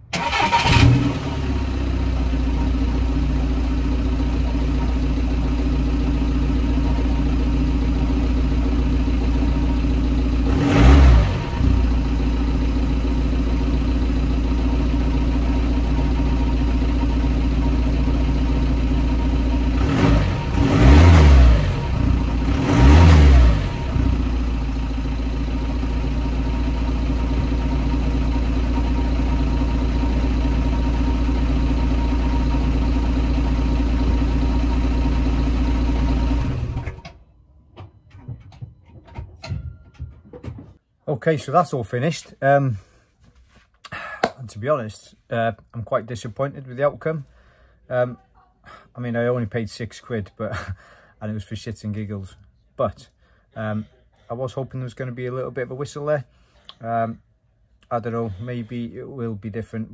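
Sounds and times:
van engine idling: 0:00.0 - 0:38.5
engine revs blipped: 0:00.1 - 0:14.0, 0:14.7 - 0:37.0.

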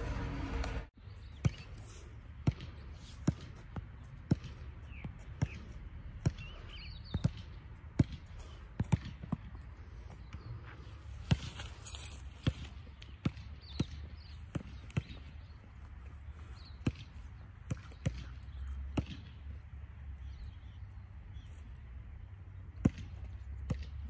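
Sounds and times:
basketball bouncing on asphalt: 0:01.2 - 0:01.7, 0:02.3 - 0:10.5, 0:11.1 - 0:11.6, 0:12.3 - 0:15.5, 0:16.8 - 0:19.5, 0:22.8 - 0:24.0.

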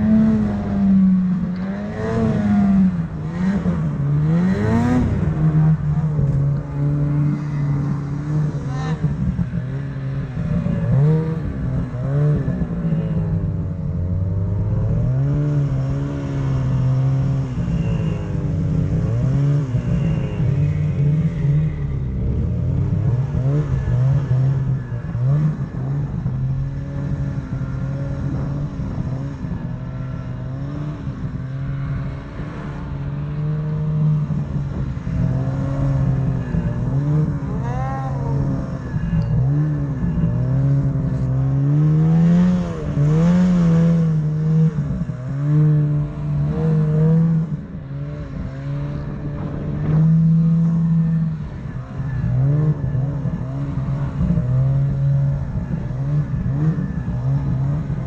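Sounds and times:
snowmobile engine revving: 0:00.0 - 0:13.1, 0:22.2 - 0:58.0.

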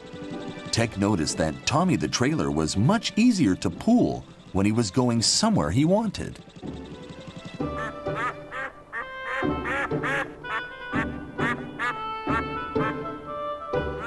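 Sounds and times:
light background music: 0:00.0 - 0:14.0
cartoon duck quacking: 0:07.8 - 0:13.0.

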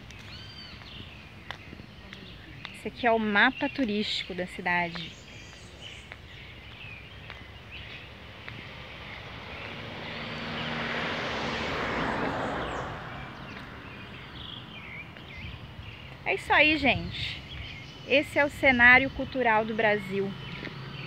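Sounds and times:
car passing: 0:04.9 - 0:18.0, 0:19.0 - 0:21.0.

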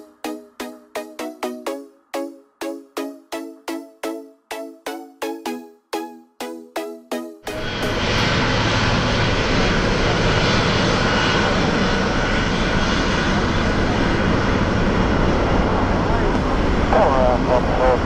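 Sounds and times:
thin high engine whine: 0:07.4 - 0:18.0
jet engines at takeoff power: 0:07.5 - 0:18.0.

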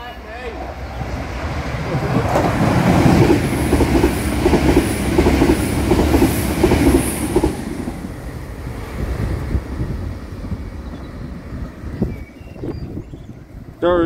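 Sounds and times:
train running rumble: 0:00.5 - 0:13.8.

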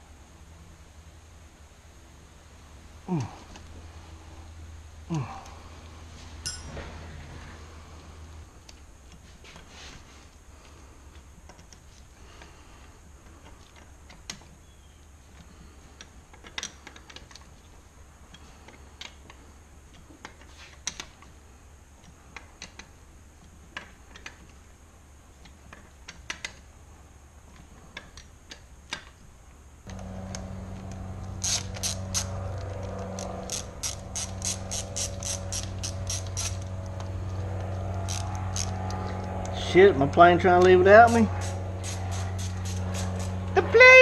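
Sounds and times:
steady low hum: 0:00.0 - 0:16.4, 0:26.7 - 0:44.0
tools clinking: 0:06.4 - 0:06.9, 0:30.8 - 0:37.1
ratchet wrench clicking: 0:31.2 - 0:37.1, 0:37.9 - 0:39.4, 0:41.1 - 0:43.4.

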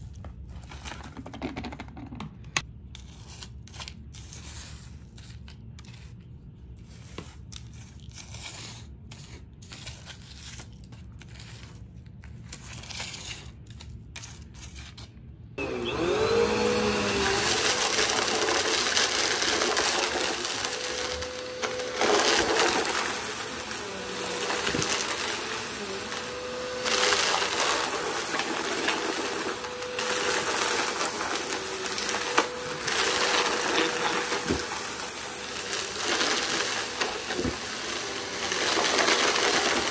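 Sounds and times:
upright vacuum cleaner motor: 0:15.6 - 0:39.9
vacuum sucking up debris: 0:15.6 - 0:39.9.

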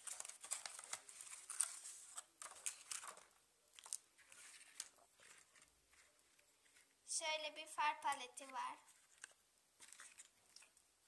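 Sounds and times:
paper rustling: 0:00.0 - 0:07.0, 0:07.9 - 0:10.8.

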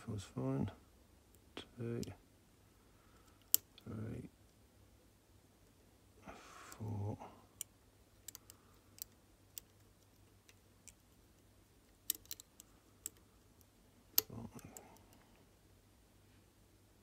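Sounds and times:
lock pick clicking in padlock: 0:12.0 - 0:13.2.

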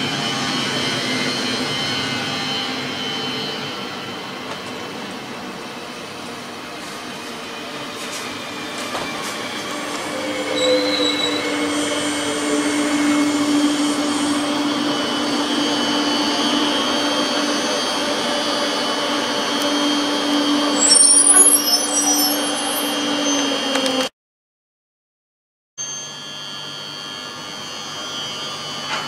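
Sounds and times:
train electric whine: 0:00.0 - 0:24.1, 0:25.8 - 0:29.0
wavering wheel and brake squeal: 0:08.0 - 0:24.0
high brake squeals: 0:09.3 - 0:17.9, 0:18.8 - 0:24.0.

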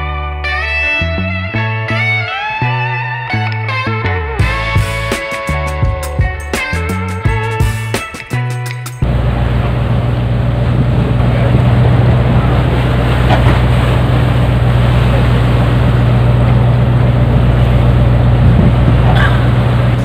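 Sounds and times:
boat engine humming: 0:00.1 - 0:20.0
wind and sea rushing: 0:09.0 - 0:20.0.

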